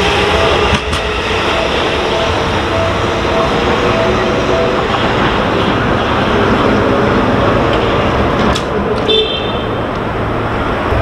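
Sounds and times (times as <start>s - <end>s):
level crossing alarm ringing: 0.0s - 7.2s
urban traffic noise: 0.0s - 11.0s.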